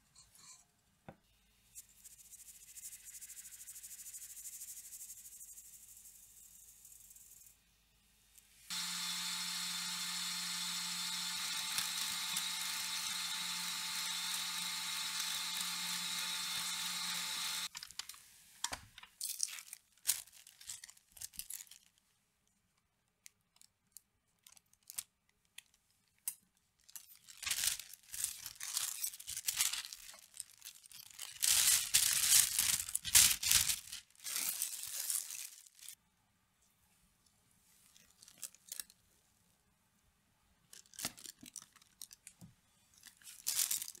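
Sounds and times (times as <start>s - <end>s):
stand mixer whirring: 8.7s - 17.7s
plastic piping bag crinkling: 19.2s - 22.0s, 26.8s - 36.0s, 37.8s - 39.0s, 40.7s - 42.3s, 43.0s - 44.0s.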